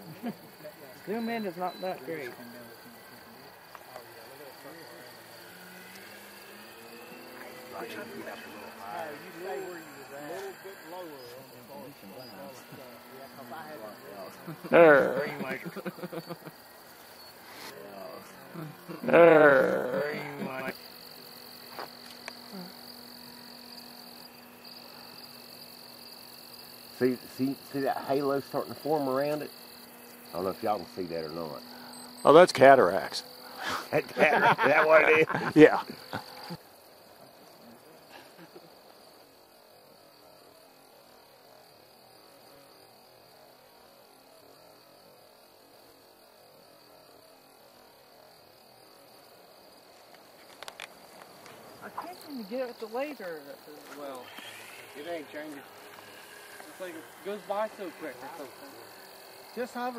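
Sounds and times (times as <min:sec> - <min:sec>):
low hiss: 0:00.0 - 0:59.9
night insects trilling: 0:00.0 - 0:59.9
faint ticks: 0:21.7 - 0:23.5, 0:49.9 - 0:51.7.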